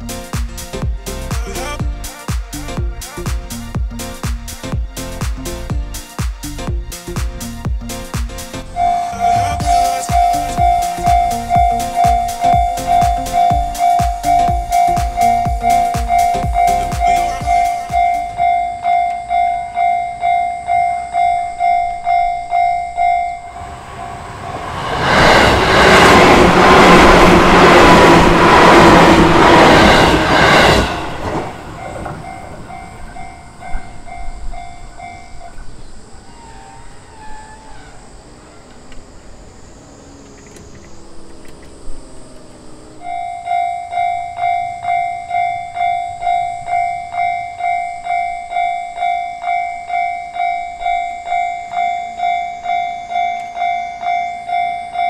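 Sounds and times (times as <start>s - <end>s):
electric train passing: 0.0s - 55.0s
level-crossing warning bell clanging: 8.8s - 24.3s, 25.2s - 39.5s, 43.0s - 55.0s.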